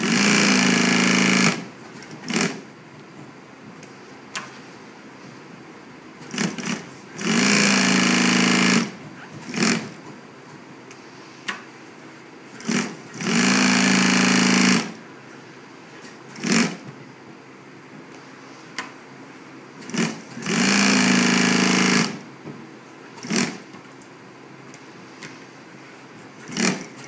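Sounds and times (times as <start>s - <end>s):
sewing machine stitching: 0.0s - 1.6s, 2.2s - 2.6s, 6.3s - 9.9s, 12.6s - 14.9s, 16.4s - 16.8s, 19.8s - 22.2s, 23.2s - 23.6s, 26.4s - 27.0s.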